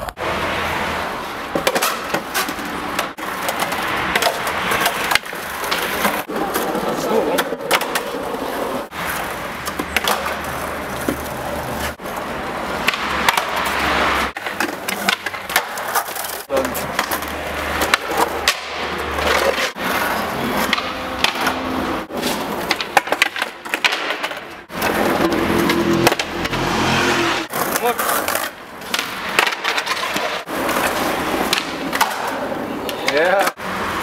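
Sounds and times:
skateboard wheels rolling on paving: 0.0 - 34.0
skateboard snaps and clacks: 1.5 - 26.6, 27.5 - 34.0.

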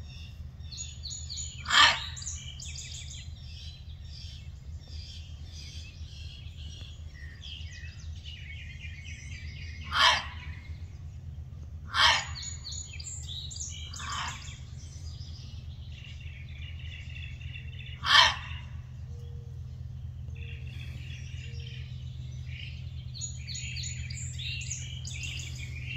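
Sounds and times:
birdsong: 0.0 - 25.9
fox barking: 1.6 - 2.4, 9.8 - 10.6, 11.9 - 12.7, 13.9 - 14.6, 18.0 - 18.8.

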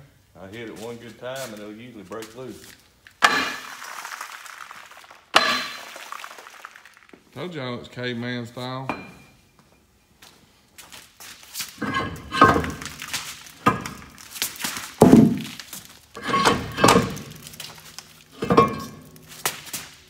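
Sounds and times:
ringing metal knocks: 8.9 - 9.4.

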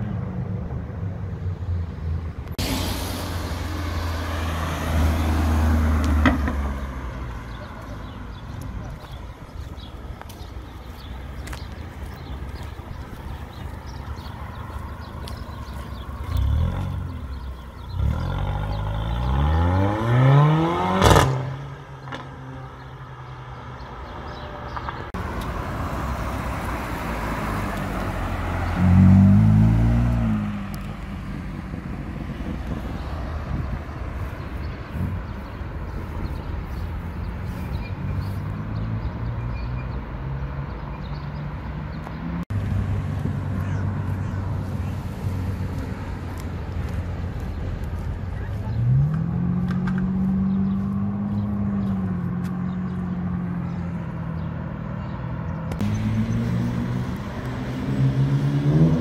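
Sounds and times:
car engine accelerating past: 16.2 - 22.2, 25.6 - 31.2, 55.8 - 59.0.

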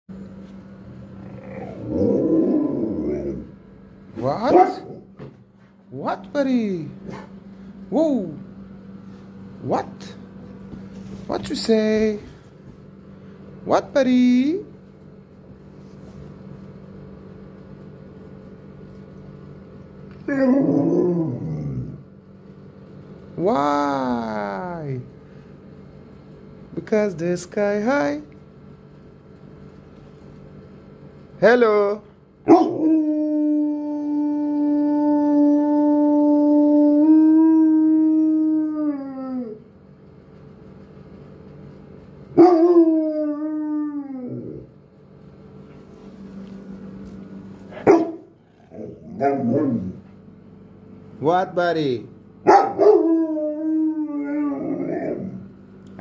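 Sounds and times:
faint steady hum: 0.1 - 56.0
dog groaning: 1.1 - 3.6, 20.2 - 22.1, 47.7 - 50.1, 54.1 - 55.6
dog howling: 1.2 - 3.6, 20.2 - 22.0, 32.5 - 39.7, 42.3 - 44.8, 47.7 - 50.1, 52.5 - 55.5.

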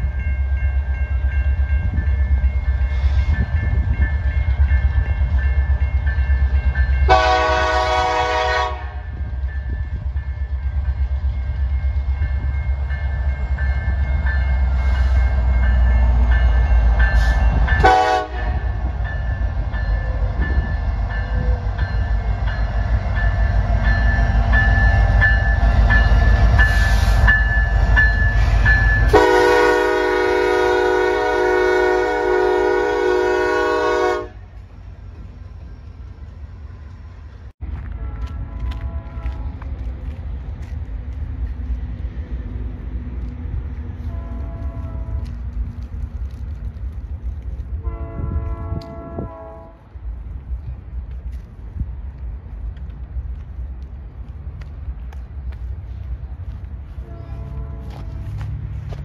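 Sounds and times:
locomotive engine and wheels rumbling: 0.0 - 59.0
locomotive air horn blasts: 7.1 - 9.1, 17.2 - 18.7, 28.4 - 34.5, 37.9 - 39.6, 44.0 - 45.2, 47.8 - 49.8, 57.0 - 58.4.

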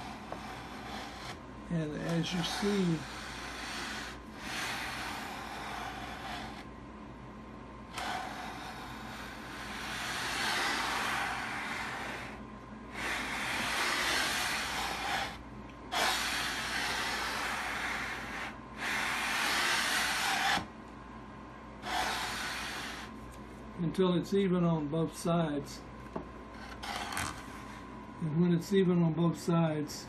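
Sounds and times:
sandpaper rubbing wood: 0.0 - 1.4, 2.0 - 6.6, 8.0 - 12.4, 13.0 - 20.7, 21.8 - 23.1.

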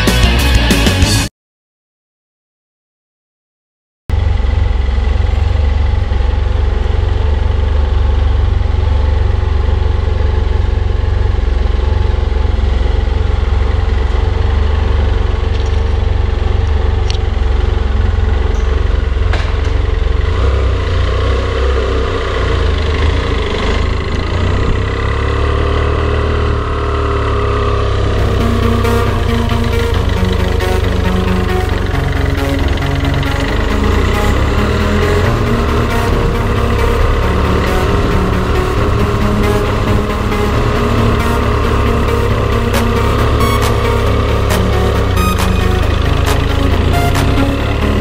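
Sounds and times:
motorcycle engine rumbling: 4.1 - 48.0.

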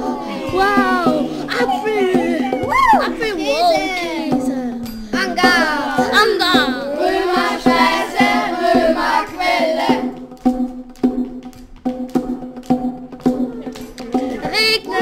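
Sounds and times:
voices singing gliding pitches: 0.0 - 11.4.

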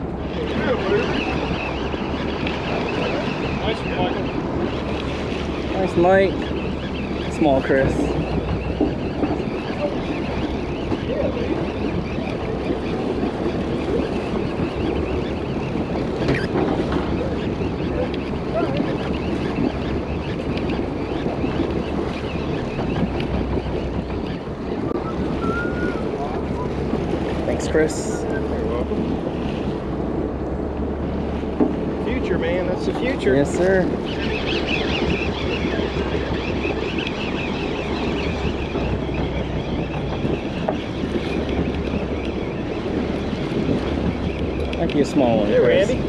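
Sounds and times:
water washing around hull: 0.0 - 46.0
wind buffeting microphone: 0.0 - 46.0
high wavering squeal: 24.9 - 26.8.

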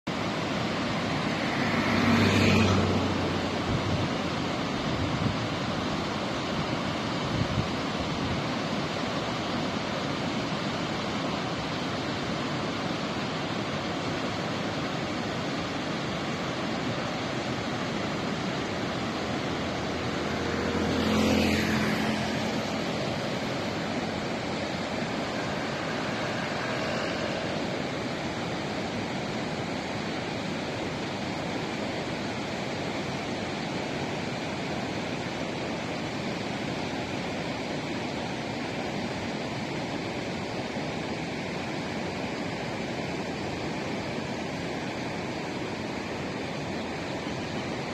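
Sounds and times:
river rushing over rapids: 0.1 - 47.9
vehicle passing by: 0.3 - 7.1, 14.3 - 37.6.

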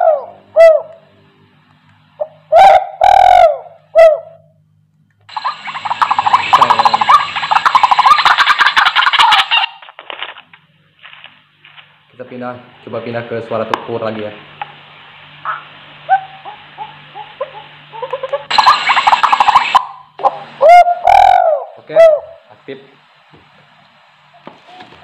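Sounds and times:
recorded bird calls through speaker: 0.0 - 1.1, 2.2 - 4.6, 5.3 - 9.9, 15.4 - 22.5.

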